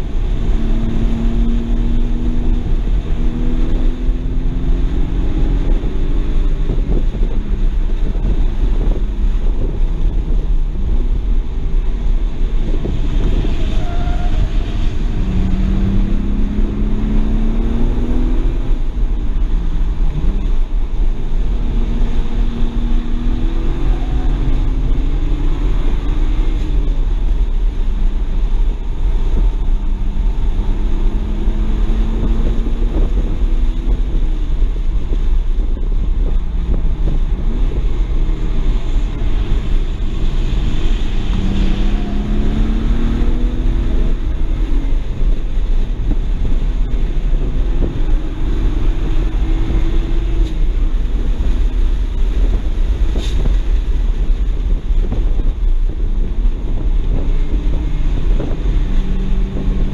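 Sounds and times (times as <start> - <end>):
car engine accelerating: 0.0 - 59.9
wind noise on microphone: 0.0 - 59.9.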